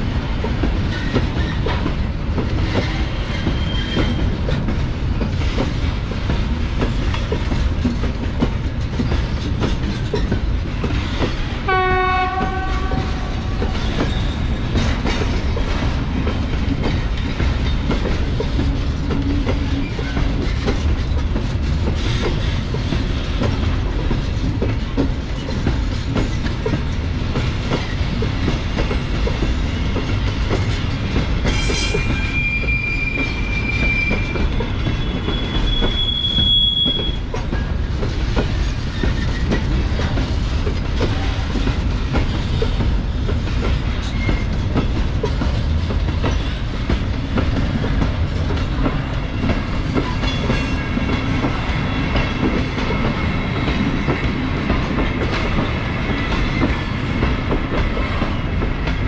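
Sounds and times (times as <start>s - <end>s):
freight wagons rumbling and clattering: 0.0s - 11.6s, 12.4s - 59.0s
high-pitched wheel squeals: 3.4s - 4.2s, 31.6s - 37.2s.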